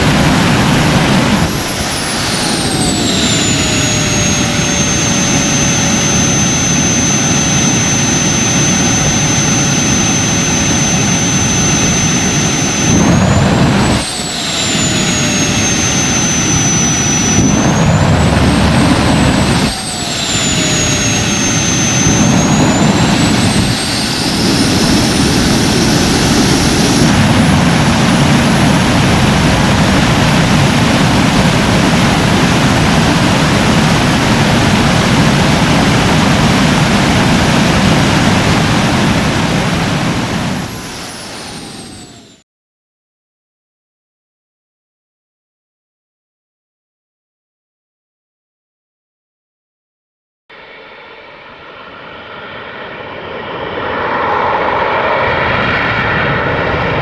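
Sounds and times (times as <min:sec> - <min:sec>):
turbine whine: 0:00.0 - 0:42.4, 0:50.5 - 0:57.0
turbojet engine roaring: 0:00.0 - 0:42.4, 0:50.5 - 0:57.0.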